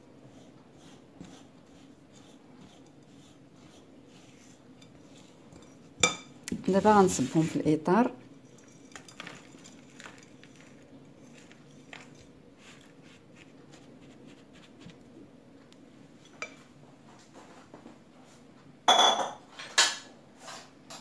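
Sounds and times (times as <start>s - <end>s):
spatula scraping glass bowl: 0.4s - 5.9s
loud ringing clink of dishes: 18.9s - 19.4s.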